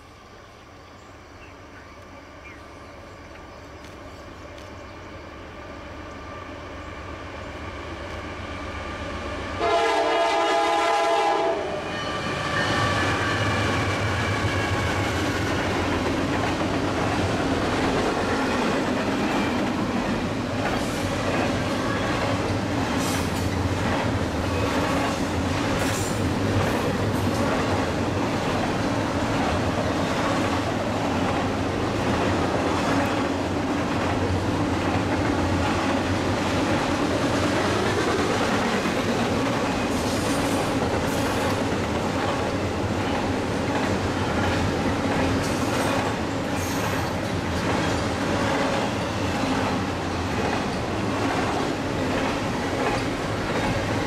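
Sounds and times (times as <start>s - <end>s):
locomotive horn blast: 9.6s - 14.8s
train wheels clattering on rails: 12.6s - 54.0s.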